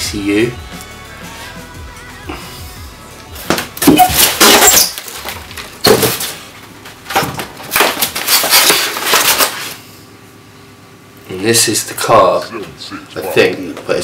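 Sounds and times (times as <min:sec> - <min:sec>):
foam and plastic wrap crunching: 0:04.0 - 0:06.8, 0:07.6 - 0:09.8.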